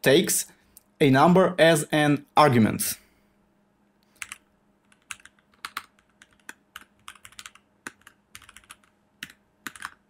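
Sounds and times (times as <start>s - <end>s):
computer keyboard typing: 4.2s - 10.0s.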